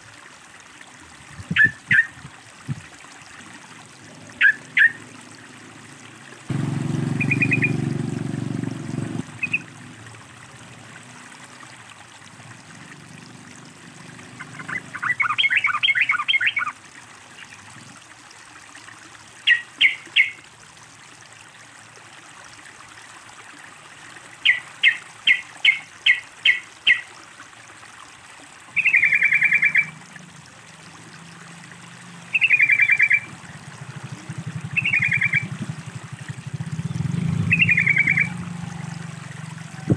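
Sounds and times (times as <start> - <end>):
water trickling: 0.0 - 39.9
bird chirping and trilling: 1.5 - 2.1, 4.4 - 5.0, 7.2 - 7.8, 9.4 - 9.7, 14.4 - 16.7, 19.4 - 20.4, 24.4 - 27.1, 28.8 - 30.0, 32.3 - 33.3, 34.7 - 35.6, 36.7 - 38.4.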